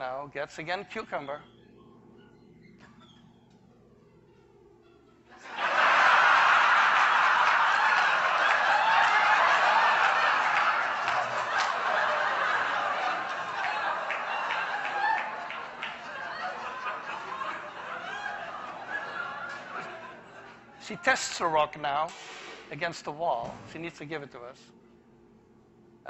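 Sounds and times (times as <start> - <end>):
audience laughing: 5.4 - 21.5
sharp knock: 22.1 - 22.7.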